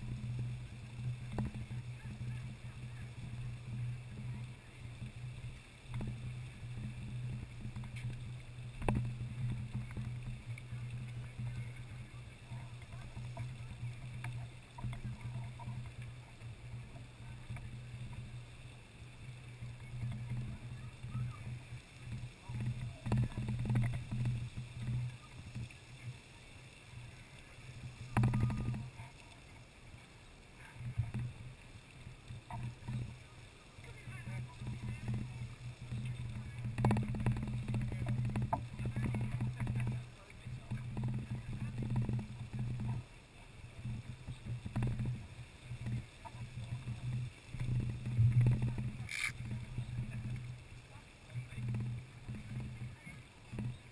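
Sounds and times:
geyser rushing water and steam: 0.0s - 53.9s
rapid clicking and knocking: 6.8s - 16.1s, 22.1s - 25.7s, 28.1s - 28.9s, 34.3s - 43.0s, 43.9s - 45.2s.

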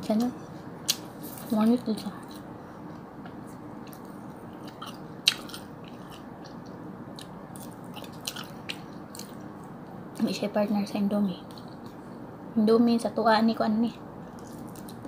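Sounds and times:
person chewing noodles: 2.2s - 9.7s.

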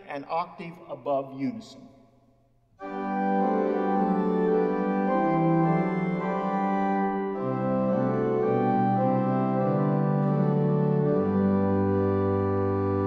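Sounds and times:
pipe organ playing chords: 2.8s - 13.0s.

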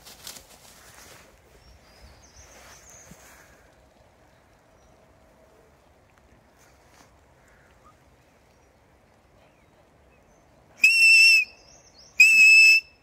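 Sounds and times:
high dog whistle blasts: 10.8s - 11.5s, 12.2s - 12.9s.

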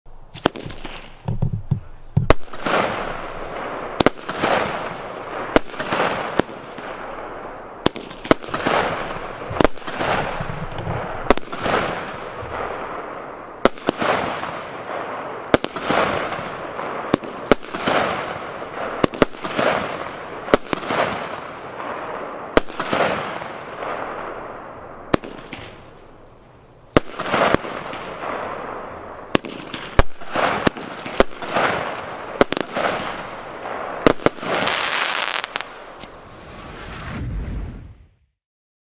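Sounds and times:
firework bangs with crackling hiss: 0.3s - 38.2s.

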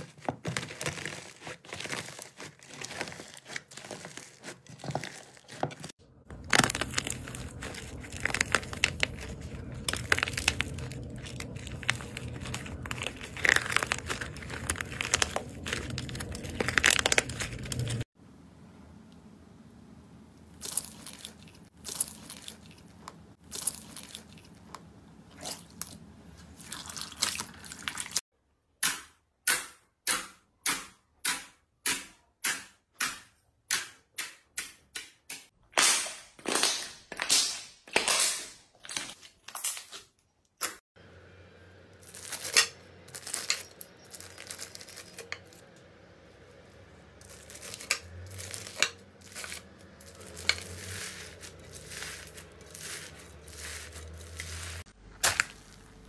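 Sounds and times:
crunchy crackles of squeezed floam: 0.0s - 18.1s, 47.2s - 56.0s
slime squelching and crackling: 0.0s - 18.2s, 20.5s - 28.2s, 42.0s - 45.7s, 46.5s - 56.0s.

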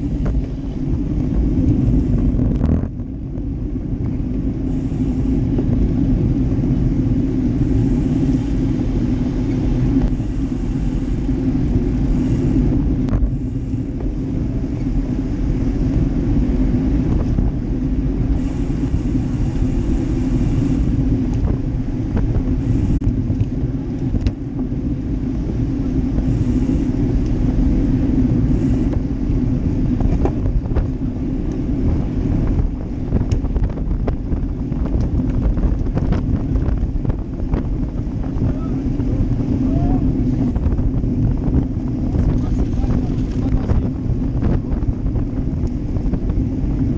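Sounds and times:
road rumble: 0.0s - 46.9s
wind buffeting microphone: 0.0s - 46.9s.

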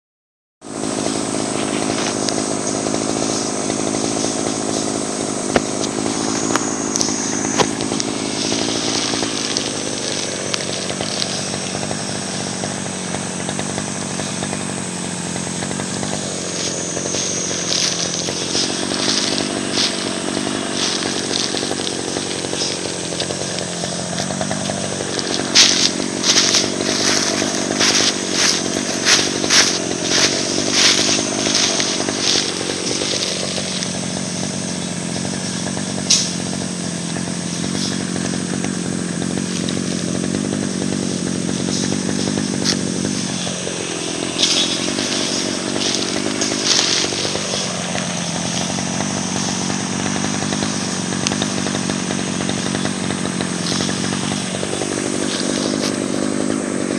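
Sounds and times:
small engine running: 0.6s - 56.9s
dry leaves crackling: 0.7s - 56.9s.

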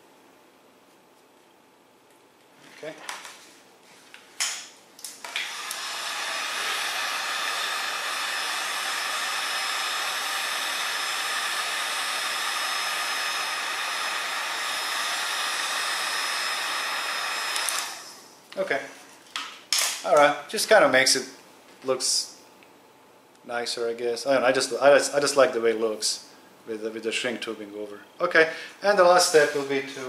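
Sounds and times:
heat gun blowing: 5.0s - 18.4s.

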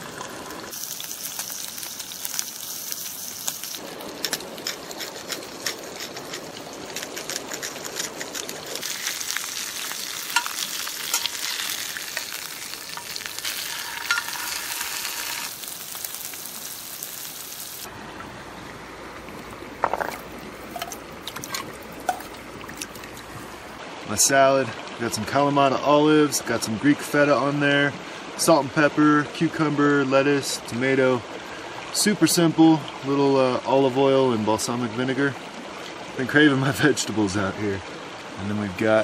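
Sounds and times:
fish sizzling in a skillet: 0.7s - 5.6s, 7.6s - 17.9s
metal spatula turning fish: 4.1s - 15.8s, 19.8s - 23.2s.

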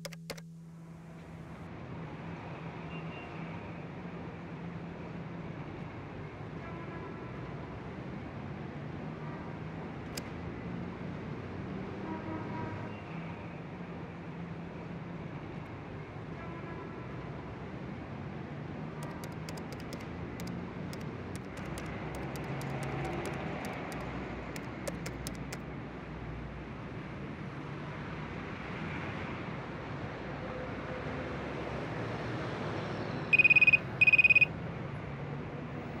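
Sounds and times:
phone keypad beeps: 0.0s - 0.4s, 19.0s - 24.0s, 24.6s - 25.6s, 33.3s - 34.5s
laptop keyboard typing: 0.0s - 0.5s, 19.0s - 25.6s, 33.3s - 34.5s
traffic noise: 0.0s - 36.0s.

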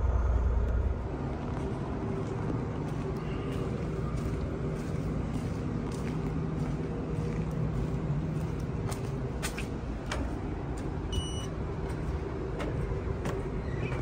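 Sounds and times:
truck engine rumble: 0.0s - 14.0s
footsteps on concrete: 1.4s - 11.0s
short electronic beep: 11.2s - 11.5s.

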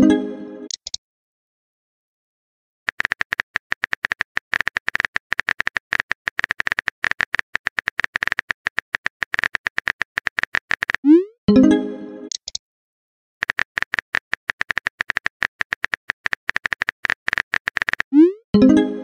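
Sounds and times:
phone keyboard taps: 2.9s - 11.0s, 13.4s - 18.1s.

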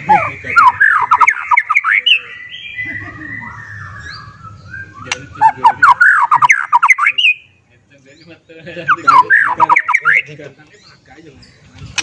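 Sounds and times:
songbird whistling: 0.0s - 7.6s, 8.8s - 10.3s.

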